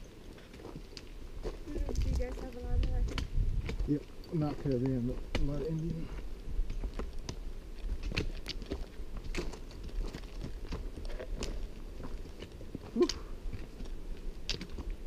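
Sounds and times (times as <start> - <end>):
boots crunching on gravel trail: 6.2 - 15.0.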